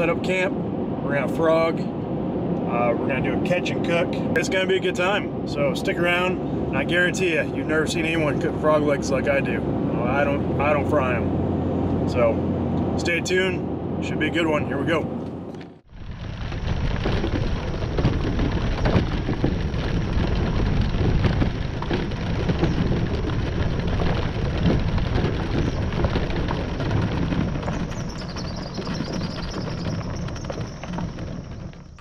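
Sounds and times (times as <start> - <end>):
trailer rolling over gravel: 15.6 - 32.0
wind on microphone: 15.8 - 32.0.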